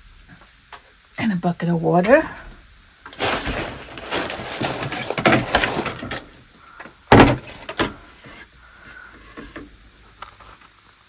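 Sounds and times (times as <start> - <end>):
plastic bucket scraping and knocking: 3.1 - 6.4
bucket set down knock: 7.1 - 8.0.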